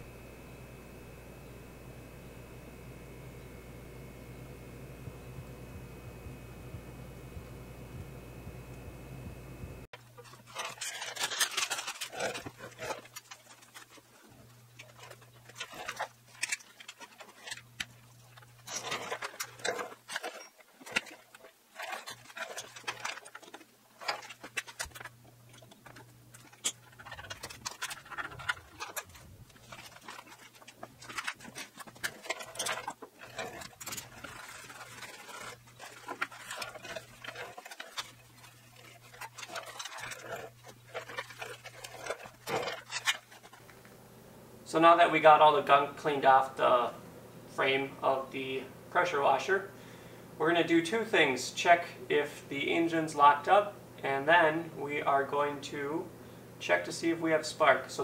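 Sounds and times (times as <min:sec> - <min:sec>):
low hum: 0:00.0 - 0:44.7
rag rubbing and scrubbing: 0:10.0 - 0:43.8.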